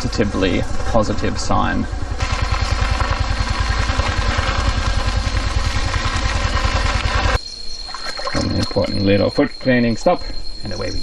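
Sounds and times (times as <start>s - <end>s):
scooter engine running: 0.0s - 7.4s.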